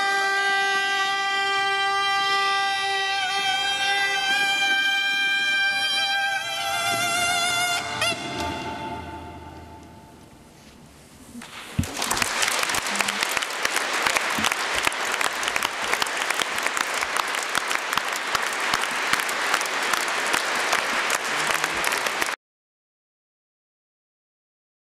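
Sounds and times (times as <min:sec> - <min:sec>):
audience applauding: 0:11.4 - 0:22.4.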